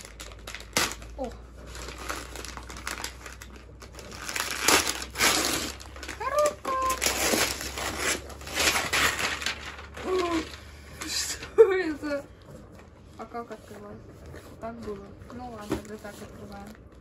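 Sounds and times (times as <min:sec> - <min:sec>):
wrapping paper tearing and crumpling: 0:00.0 - 0:12.2.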